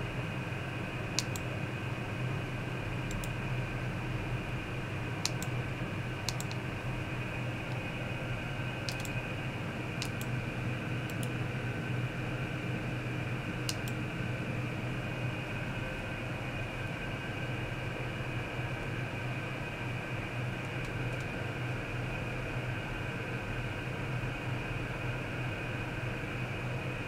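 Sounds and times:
steady hum with high whining: 0:00.0 - 0:27.0
mouse and keyboard clicking: 0:01.2 - 0:01.4, 0:05.2 - 0:05.6, 0:06.2 - 0:06.6, 0:08.8 - 0:09.2, 0:10.0 - 0:10.4, 0:11.1 - 0:11.4, 0:13.7 - 0:14.0, 0:20.6 - 0:21.4.

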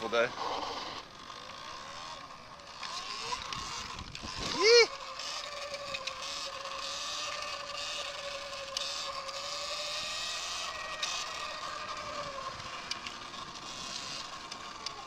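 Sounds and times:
electric motorbike motor whining: 0:00.0 - 0:15.0
wind: 0:00.0 - 0:15.0.

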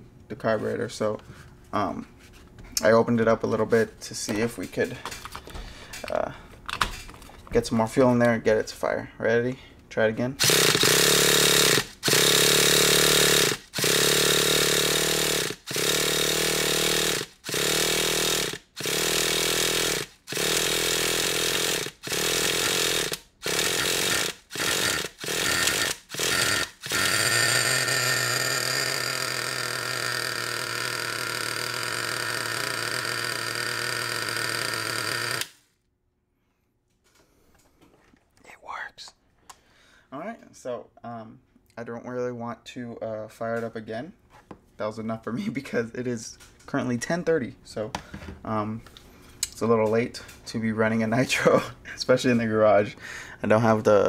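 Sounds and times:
small nitro engine running: 0:10.4 - 0:35.6.

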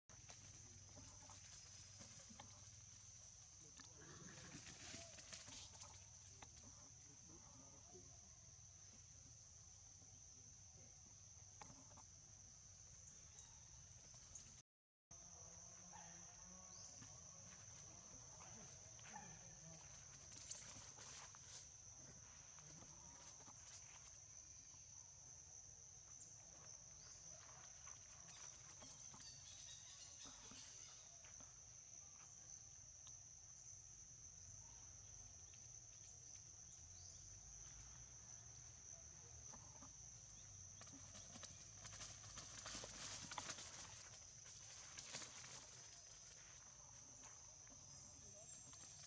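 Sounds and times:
insects chorus: 0:00.1 - 0:49.0
rustling of dry leaves: 0:04.0 - 0:06.2, 0:41.0 - 0:46.6
faint ticks and rustles: 0:16.5 - 0:24.6, 0:39.5 - 0:49.0.

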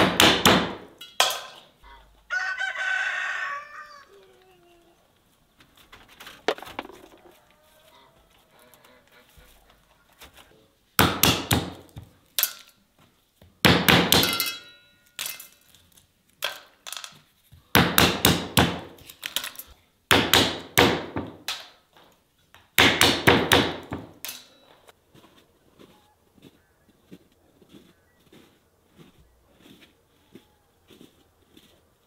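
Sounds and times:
hard knocking impacts: 0:06.5 - 0:07.3.

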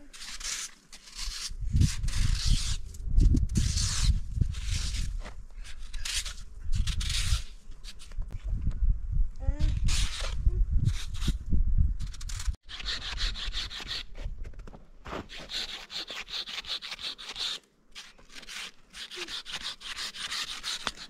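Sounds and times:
fast scraping on hard surface: 0:00.0 - 0:08.4, 0:15.0 - 0:21.0.

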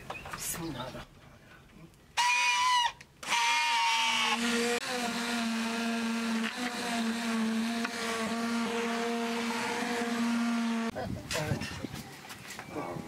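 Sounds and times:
immersion blender motor whine: 0:02.2 - 0:10.9.

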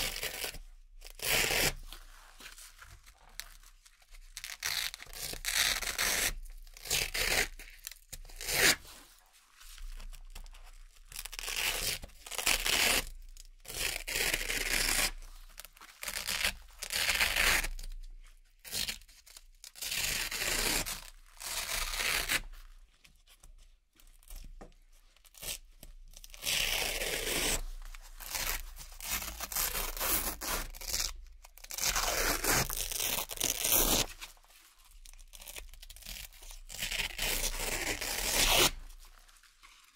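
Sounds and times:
velcro ripping: 0:00.0 - 0:01.9, 0:04.4 - 0:08.8, 0:11.2 - 0:13.1, 0:13.7 - 0:15.2, 0:16.0 - 0:17.8, 0:19.7 - 0:22.6, 0:26.2 - 0:34.4, 0:35.3 - 0:39.3.

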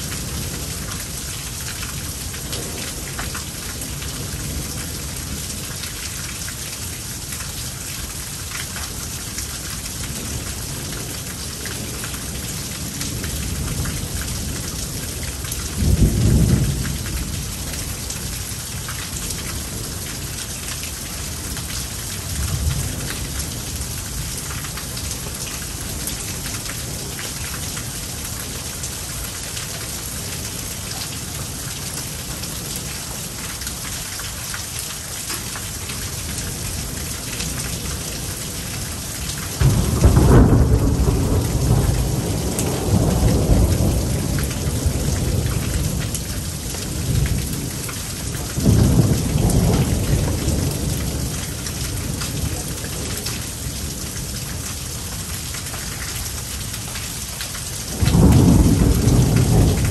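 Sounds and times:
steady rain: 0:00.0 - 0:59.9
thunder rumbling: 0:39.6 - 0:46.0, 0:48.5 - 0:53.9, 0:57.9 - 0:59.9.

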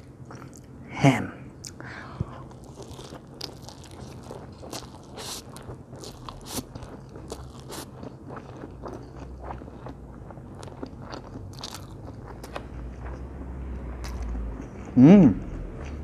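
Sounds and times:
wet chewing smacks: 0:02.5 - 0:10.0
person slurping noodles: 0:05.0 - 0:05.6.

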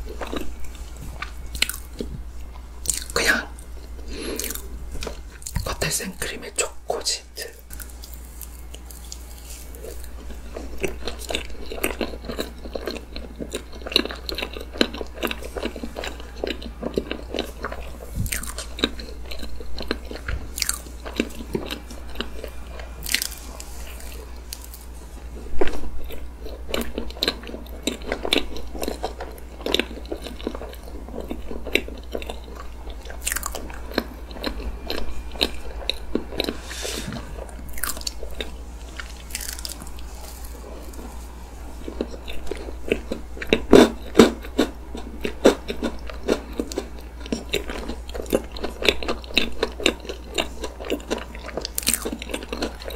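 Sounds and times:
steady low hum: 0:00.0 - 0:52.9
chewing with wet mouth clicks: 0:01.2 - 0:05.8, 0:41.8 - 0:52.9.

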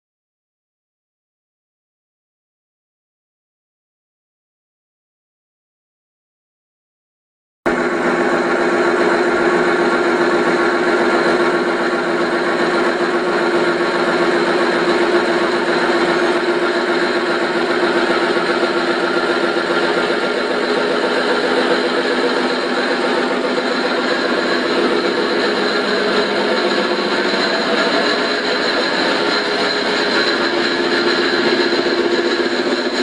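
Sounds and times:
model locomotive engine idling: 0:07.7 - 0:33.0.

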